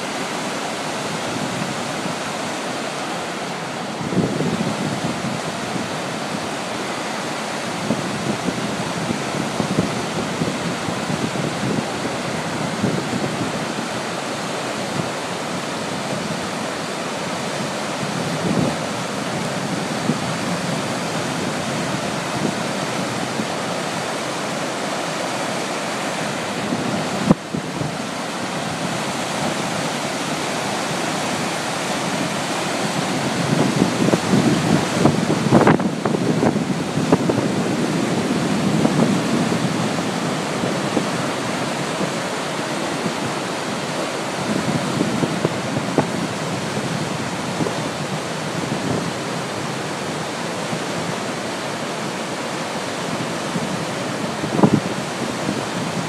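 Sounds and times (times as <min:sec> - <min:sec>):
whitewater rushing through rapids: 0:00.0 - 0:56.0.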